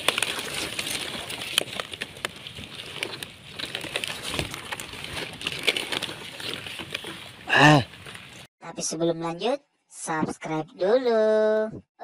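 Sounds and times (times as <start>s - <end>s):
stiff leaves rustling and scraping: 0.0s - 8.5s.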